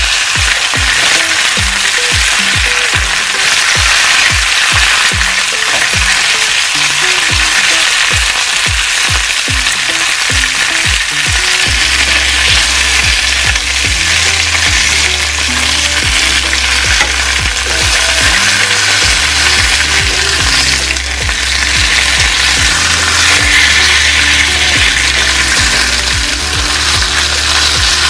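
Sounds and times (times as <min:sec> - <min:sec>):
chicken sizzling in oil: 0:00.0 - 0:28.0
music with thumping beat: 0:00.0 - 0:28.0
deep bass note: 0:11.2 - 0:28.0.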